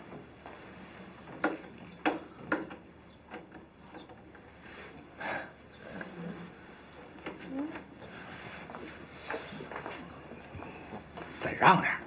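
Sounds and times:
television set clicks: 0:01.4 - 0:04.2.

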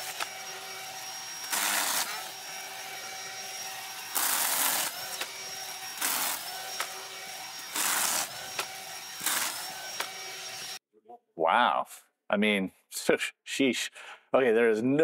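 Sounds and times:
chainsaw cutting branches: 0:00.0 - 0:10.8
electric chainsaw motor whine: 0:00.0 - 0:10.8.

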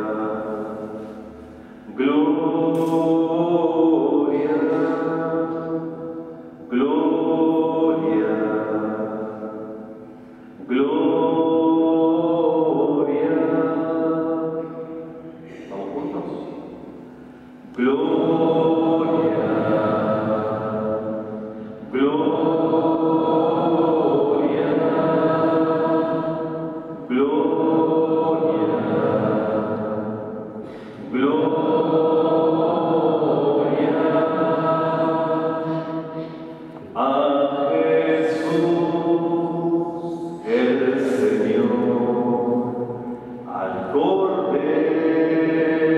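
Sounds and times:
slow hymn sung: 0:00.0 - 0:15.7, 0:16.4 - 0:45.9
man speaking into a microphone: 0:15.5 - 0:16.6.

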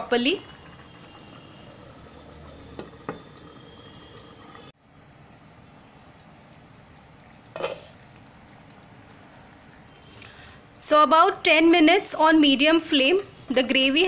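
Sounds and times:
gravy bubbling: 0:00.0 - 0:04.7, 0:05.3 - 0:10.9.

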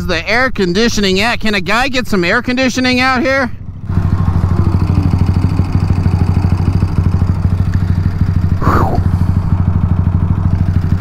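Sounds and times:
mechanical engine chatter: 0:00.0 - 0:11.0
motorcycle engine running: 0:02.2 - 0:11.0
high-pitched sweep: 0:03.9 - 0:07.6.

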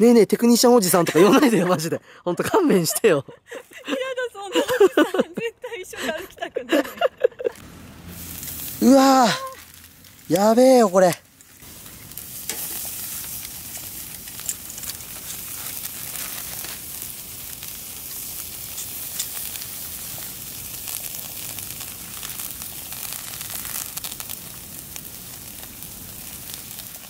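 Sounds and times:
meat sizzling on a grill: 0:07.5 - 0:27.0
sharp pops and crackles: 0:07.5 - 0:27.0.

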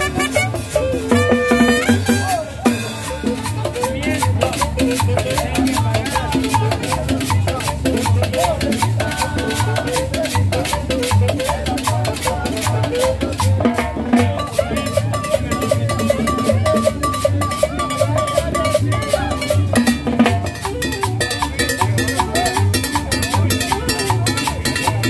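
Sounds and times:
busy percussion: 0:00.0 - 0:25.0
latin dance band playing: 0:00.0 - 0:25.0
steady bass beat: 0:00.0 - 0:25.0.

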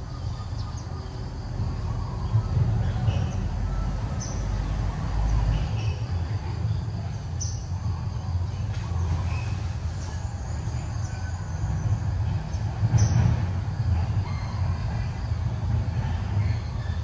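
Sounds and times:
bird chirps: 0:00.0 - 0:06.1.

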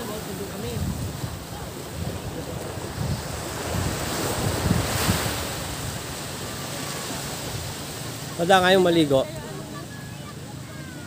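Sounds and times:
wind buffeting microphone: 0:00.0 - 0:08.1
sea waves washing ashore: 0:00.0 - 0:11.0.

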